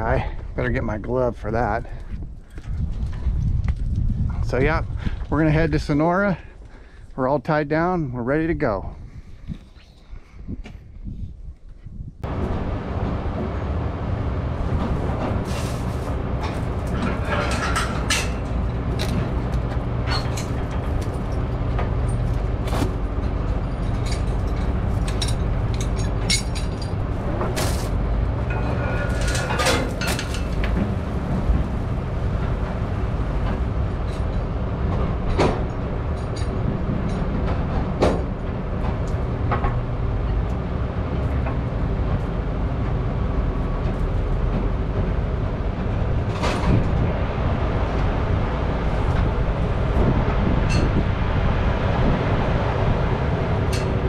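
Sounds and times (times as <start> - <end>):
sharp knocks and clanks: 14.6 - 40.5.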